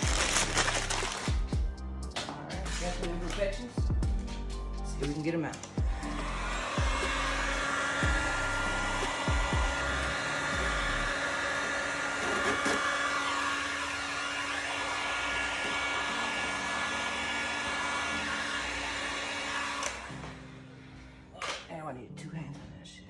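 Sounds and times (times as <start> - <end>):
heat gun blowing air: 6.0 - 20.4.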